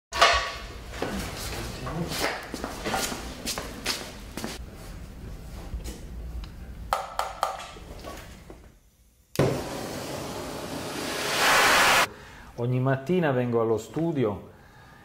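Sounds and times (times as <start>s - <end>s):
gas torch hissing: 9.4s - 12.1s.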